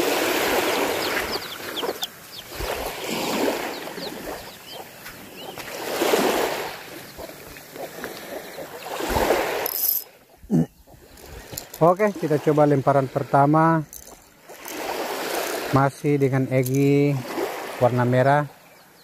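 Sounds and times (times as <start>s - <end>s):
small waves washing on beach: 0.0s - 10.3s, 10.9s - 18.7s
small birds chirping: 0.4s - 9.3s, 10.1s - 12.3s, 17.9s - 19.0s.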